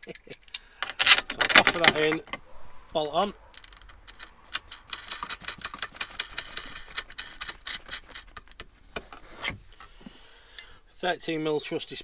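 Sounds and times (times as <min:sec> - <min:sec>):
metal rubbing against plastic: 0:01.0 - 0:09.9
bolt and nut clicking: 0:03.5 - 0:09.1.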